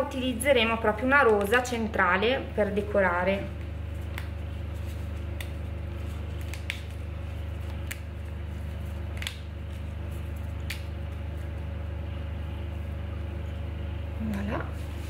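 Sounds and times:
steady low hum: 0.0s - 15.0s
petals clicking and rustling: 2.8s - 12.7s.

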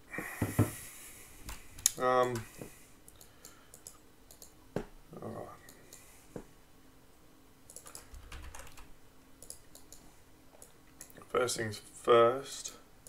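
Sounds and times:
key or mouse clicks: 7.7s - 8.8s, 9.4s - 10.0s
keyboard typing: 7.7s - 10.0s.

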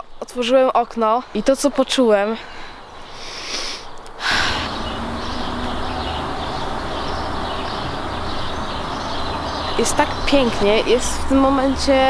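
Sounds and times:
birds chirping faintly: 0.0s - 12.0s
outdoor background noise: 0.0s - 12.0s
person sniffing: 3.1s - 4.7s.

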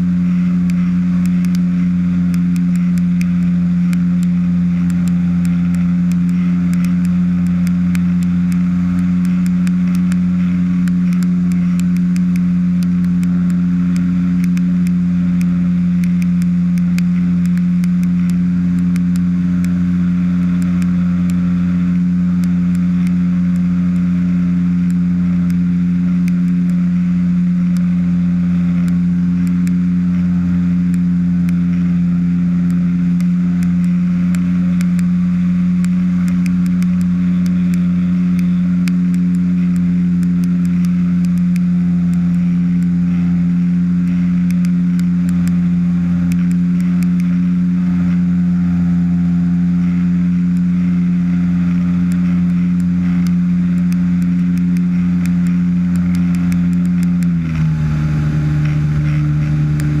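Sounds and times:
light aircraft engine drone: 0.0s - 60.0s
light clicks: 2.3s - 19.8s, 52.1s - 60.0s.

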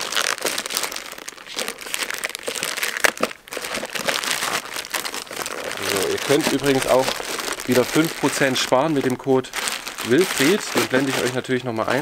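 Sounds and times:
plastic mailer crinkling: 0.0s - 12.0s.

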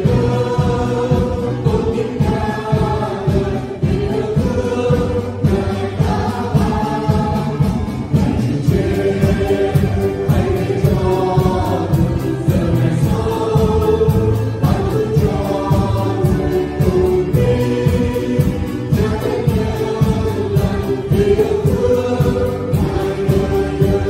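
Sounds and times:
group singing a hymn: 0.0s - 24.0s.

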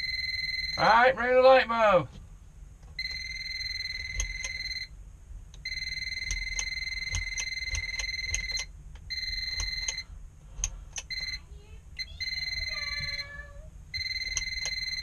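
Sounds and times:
voltage detector beeping: 0.0s - 1.0s, 3.0s - 4.9s, 5.6s - 10.1s, 11.0s - 11.4s, 12.0s - 15.0s.

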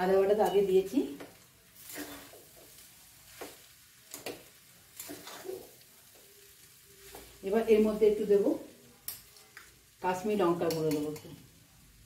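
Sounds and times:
metal spatula scraping pan: 1.8s - 2.6s, 4.2s - 5.8s.

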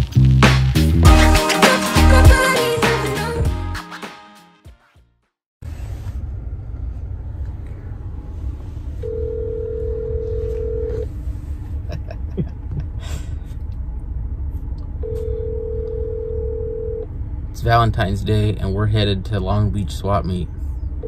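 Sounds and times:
telephone ringback tone: 9.0s - 11.0s, 15.0s - 17.0s.

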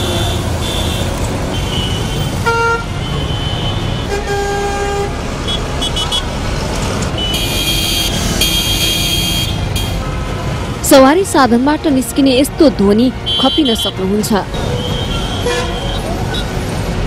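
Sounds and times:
vehicle horns honking: 0.0s - 6.4s, 7.1s - 10.5s, 13.2s - 16.5s
traffic engine rumble: 0.0s - 17.0s.

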